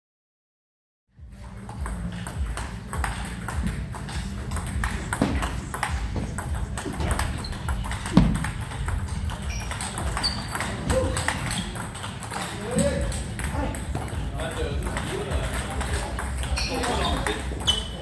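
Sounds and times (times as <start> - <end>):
table tennis ball clicking: 1.8 - 14.2.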